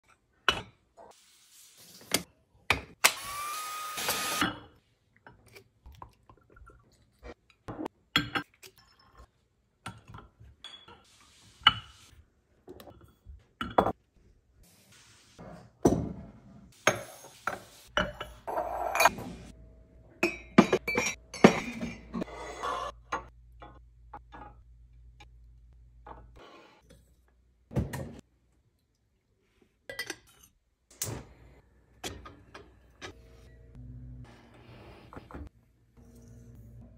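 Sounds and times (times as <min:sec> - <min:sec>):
glass lids clinking: 0:20.2 - 0:22.2.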